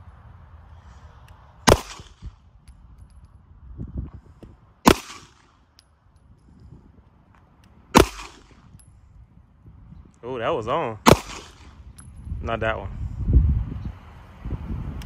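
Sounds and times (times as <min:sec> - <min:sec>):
pistol shots: 0:01.6 - 0:02.3, 0:04.8 - 0:05.6, 0:07.9 - 0:08.7, 0:11.0 - 0:11.8.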